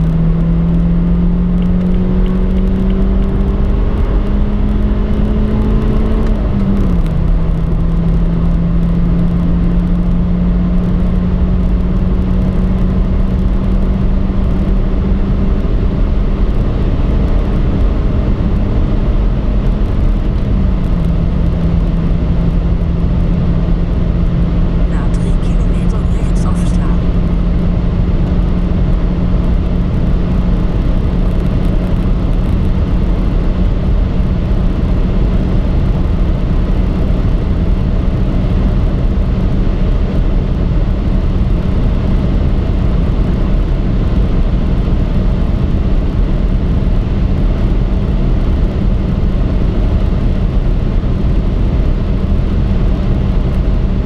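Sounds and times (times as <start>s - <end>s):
car engine accelerating: 0.0s - 54.0s
wind and road noise: 0.0s - 54.0s.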